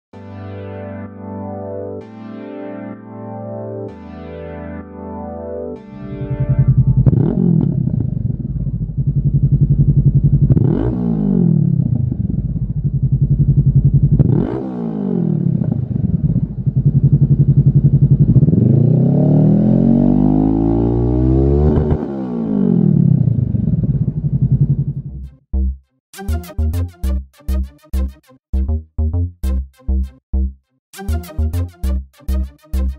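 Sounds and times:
motorcycle engine idling and revving: 6.2 - 25.3.

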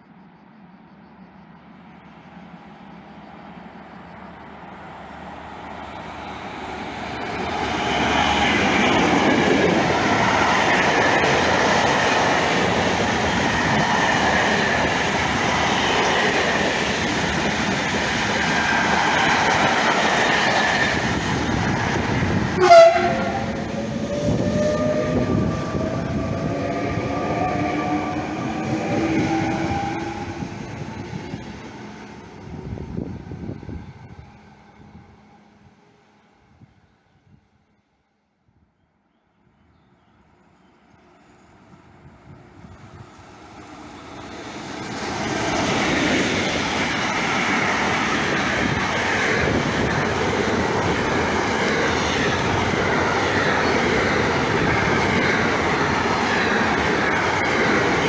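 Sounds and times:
electric train motor whine: 1.7 - 36.0.

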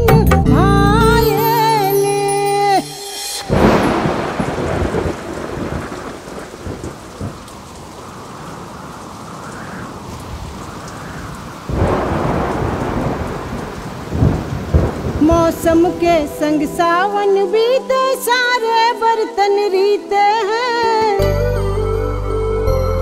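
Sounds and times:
steady rain: 3.4 - 20.9
thunder: 3.5 - 16.9.

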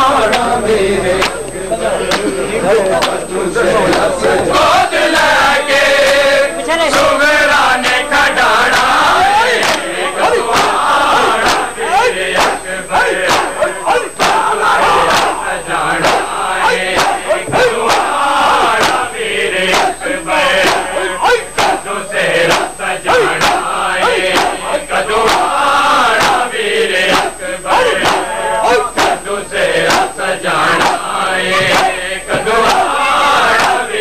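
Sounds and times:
crowd of men chanting: 0.0 - 34.0
chest-beating slaps: 1.2 - 3.2, 8.7 - 9.0, 9.6 - 15.4, 16.0 - 18.1, 18.7 - 19.0, 20.6 - 20.9, 21.5 - 21.8, 22.4 - 23.7, 24.3 - 24.6, 25.2 - 25.5, 26.2 - 26.4, 27.9 - 29.2, 29.8 - 30.1, 33.5 - 33.8.

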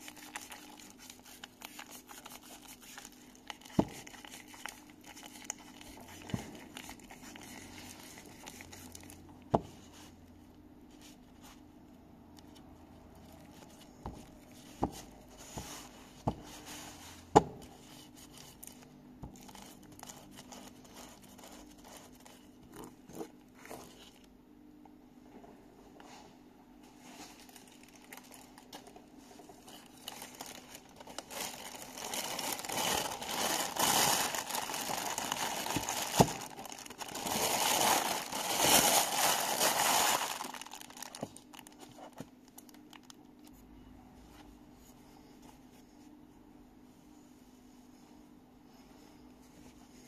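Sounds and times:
gloves rustling in grease: 27.0 - 43.0.

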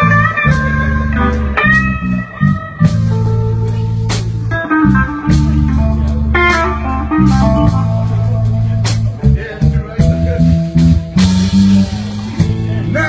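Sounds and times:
electric guitar held notes: 0.0 - 9.2
live band music: 0.0 - 13.0.

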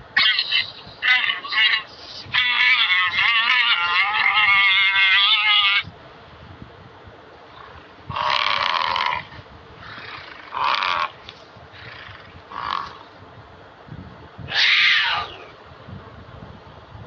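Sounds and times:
bison grunting bellows: 8.1 - 13.0.

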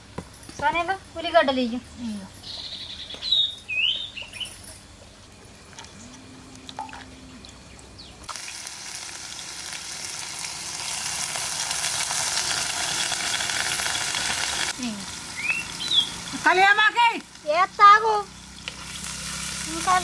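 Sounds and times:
onions sizzling in hot oil: 8.2 - 20.0.

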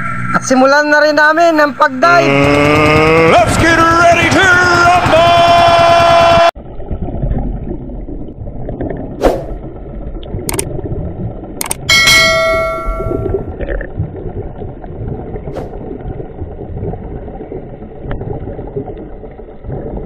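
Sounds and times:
muffled underwater water rumble: 3.6 - 20.0
sharp clicks: 10.5 - 10.7, 11.6 - 11.9
ringing metallic clang: 11.9 - 13.4.

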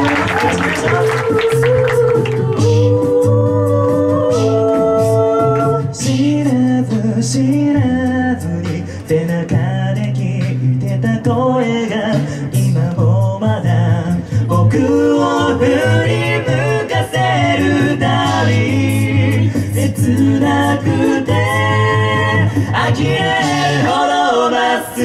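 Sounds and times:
a cappella group singing: 0.0 - 25.0.

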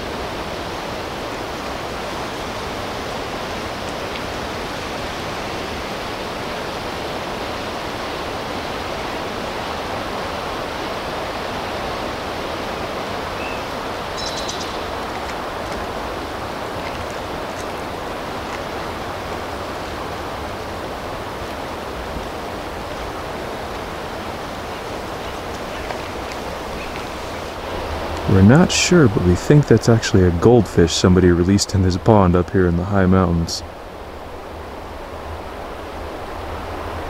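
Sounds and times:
steady rushing noise: 0.0 - 37.0
faint high chirps: 14.2 - 14.9.

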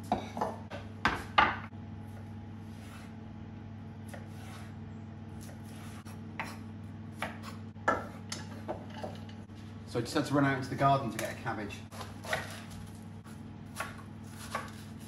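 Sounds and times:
steady low hum: 0.0 - 15.0
knife slicing carrots: 4.1 - 4.8, 5.4 - 6.6, 11.9 - 15.0.

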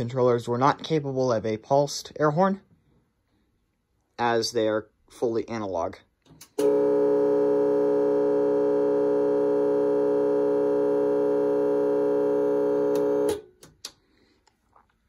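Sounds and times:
muffled electronic air horn tone: 6.6 - 13.4.

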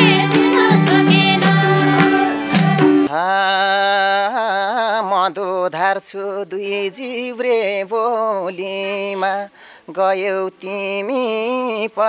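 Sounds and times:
folk music with harmonium: 0.0 - 3.1
man singing: 2.2 - 12.0.

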